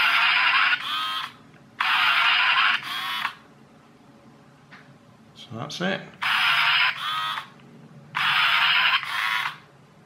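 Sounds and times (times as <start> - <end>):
toy car steering motor whirring: 0.0 - 3.4, 6.2 - 7.5, 8.2 - 9.6.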